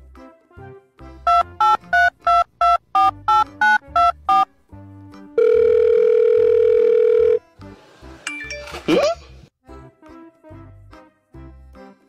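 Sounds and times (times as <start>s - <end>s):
electronic beeps: 1.3s - 4.5s.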